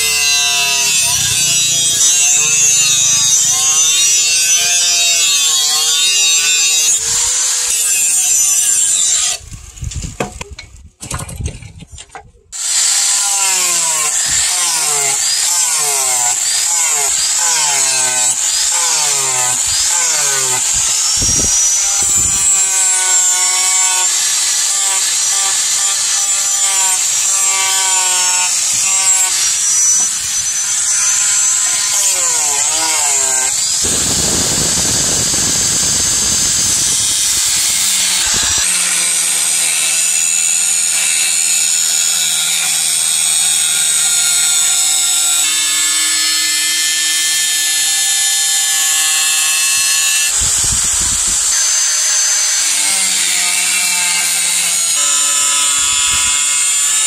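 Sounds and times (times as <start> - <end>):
angle grinder grinding steel: 0.0 - 10.4, 12.6 - 57.0.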